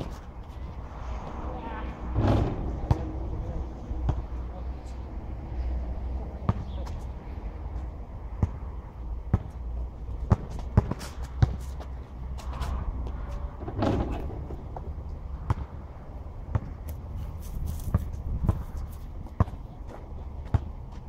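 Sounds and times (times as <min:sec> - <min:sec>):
basketball bouncing on asphalt: 0:02.2 - 0:03.1, 0:04.0 - 0:04.4, 0:06.4 - 0:07.0, 0:07.7 - 0:21.0.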